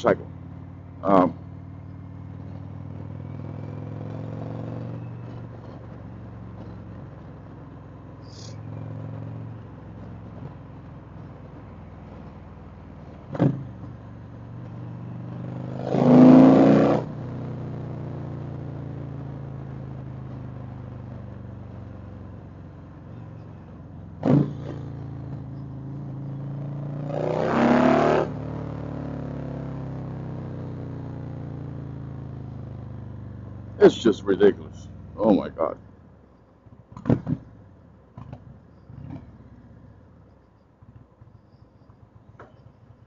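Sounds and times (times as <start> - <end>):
motorcycle engine running: 16.7 - 35.8.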